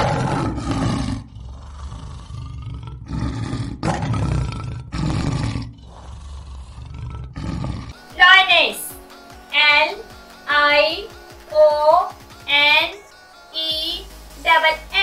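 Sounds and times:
lion roaring: 0.0 - 8.0.

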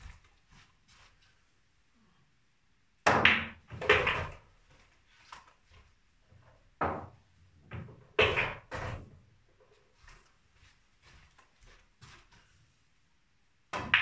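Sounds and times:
billiard balls clacking: 3.1 - 4.5, 6.8 - 9.1.

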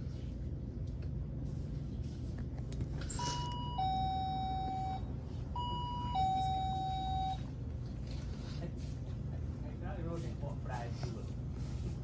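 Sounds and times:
steady low hum: 0.0 - 12.0
two-note door entry chime: 3.1 - 7.5.

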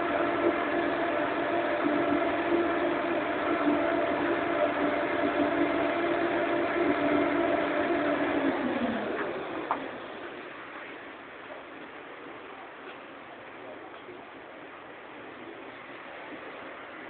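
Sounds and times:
crane hoist motor humming: 0.0 - 10.8.

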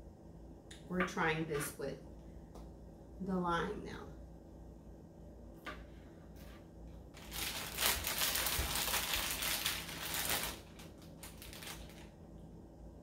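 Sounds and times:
plastic bag crinkling: 7.1 - 12.2.

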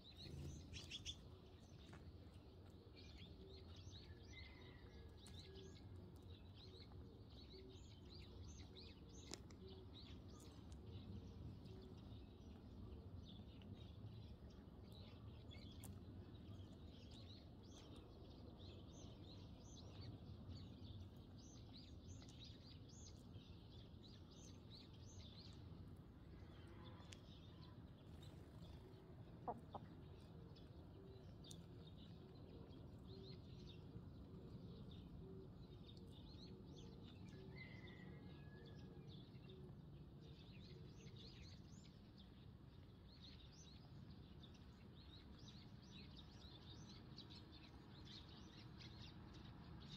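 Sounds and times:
sparrows chirping: 0.0 - 2.1, 39.2 - 49.9
hens clucking softly: 29.3 - 30.1.

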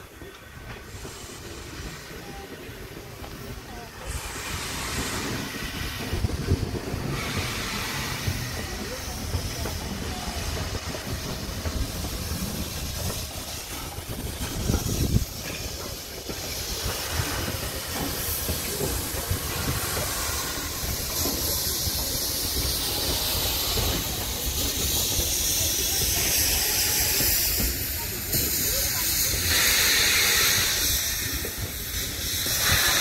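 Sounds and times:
steam hissing: 0.0 - 33.0
steam locomotive rolling on rails: 0.0 - 33.0.

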